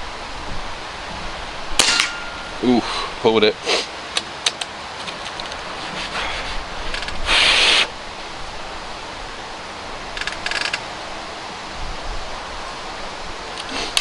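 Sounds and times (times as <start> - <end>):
small clicks of rifle action: 4.1 - 5.6, 6.9 - 7.2, 10.2 - 10.8
air rifle action scraping: 5.0 - 7.8.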